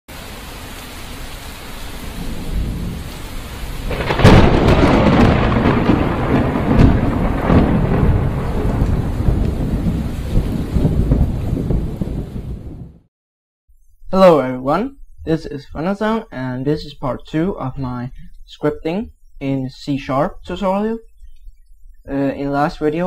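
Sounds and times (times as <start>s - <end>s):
steady rain: 0.1s - 13.0s
rumbling thunder: 2.0s - 13.0s.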